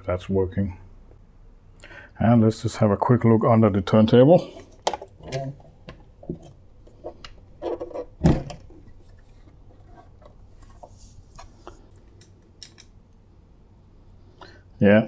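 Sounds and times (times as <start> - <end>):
handling knocks and clunks: 4.8 - 9.0.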